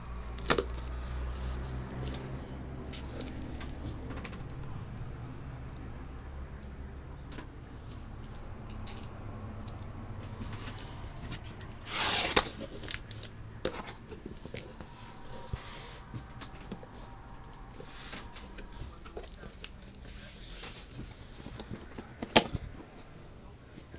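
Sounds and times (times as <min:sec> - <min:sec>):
cardboard scraping slide: 0:10.4 - 0:13.0, 0:13.7 - 0:16.2
cardboard flaps rubbing and scraping: 0:10.4 - 0:16.3.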